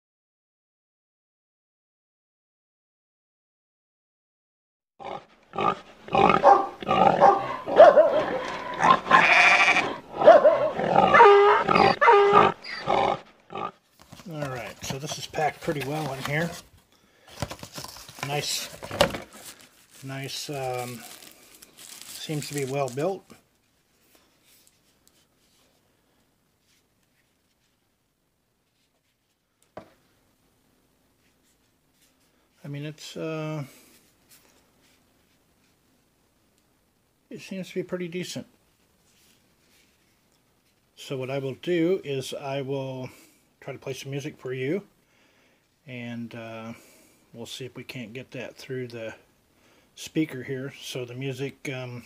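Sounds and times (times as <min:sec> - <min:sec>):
barnyard animal grunts and calls: 0:05.0 - 0:13.8.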